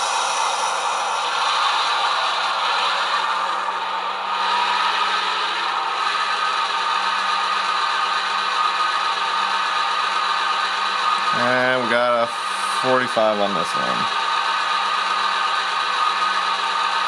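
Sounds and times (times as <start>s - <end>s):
model diesel engine sound: 0.0s - 17.0s.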